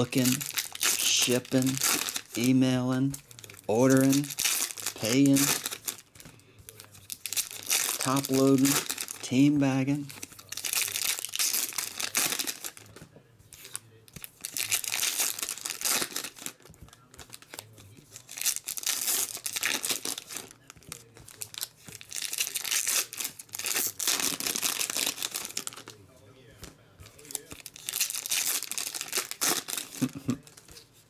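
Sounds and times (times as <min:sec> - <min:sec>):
foil wrappers crinkling and tearing: 0:00.0 - 0:26.0, 0:26.6 - 0:31.0.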